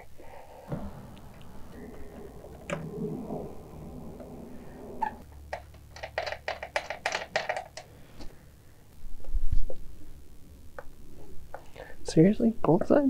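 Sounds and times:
low thump: 0:00.7 - 0:05.2.

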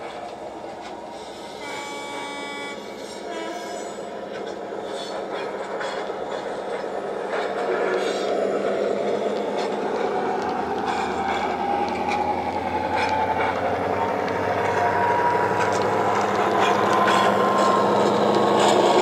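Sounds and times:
wheels clicking on track: 0:00.0 - 0:19.0
diesel engine from small speaker: 0:09.2 - 0:19.0
whine rising in pitch: 0:09.4 - 0:19.0.

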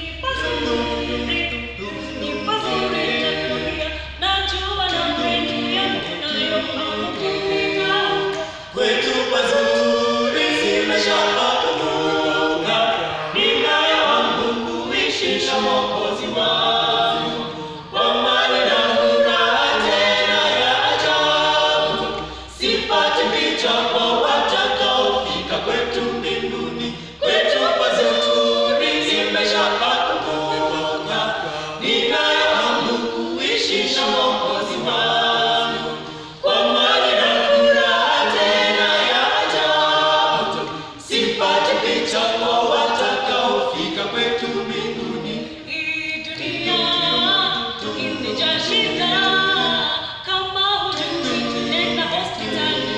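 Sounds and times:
group singing a cappella: 0:00.0 - 0:52.9.

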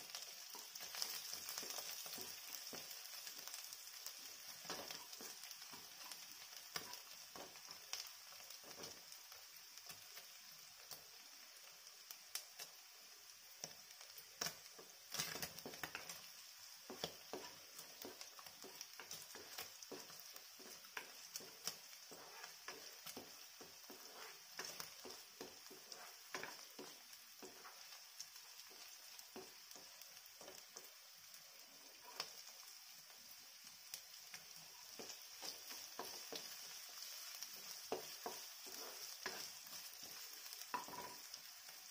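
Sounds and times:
spatula strokes on pan: 0:00.0 - 0:09.2, 0:14.1 - 0:33.2, 0:33.9 - 0:41.9
food sizzling in oil: 0:00.0 - 0:41.9.

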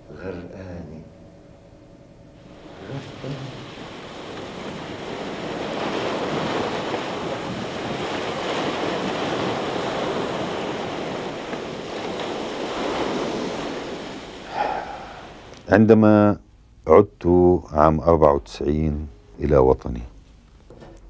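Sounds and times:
sea waves breaking: 0:02.4 - 0:15.9.

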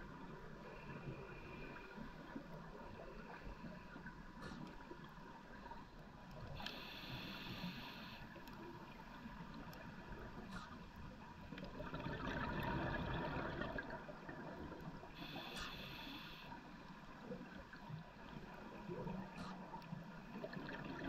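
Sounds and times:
inhale through diving regulator: 0:06.6 - 0:08.3, 0:15.2 - 0:16.6
exhaled bubbles gurgling underwater: 0:08.7 - 0:15.8, 0:16.6 - 0:21.0.

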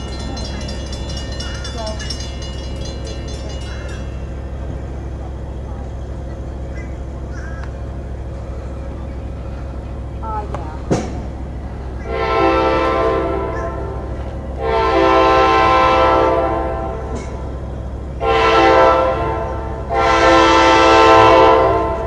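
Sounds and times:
train horn blasts: 0:11.9 - 0:22.0.

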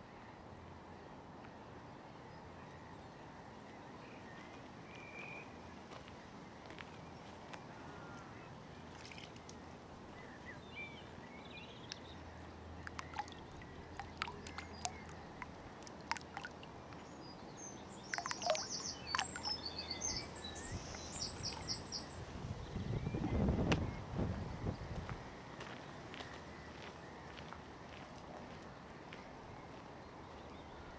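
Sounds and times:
songbirds singing: 0:02.1 - 0:30.9
fish feeding clicks and smacks: 0:08.9 - 0:09.7, 0:11.8 - 0:17.1, 0:18.0 - 0:19.8.

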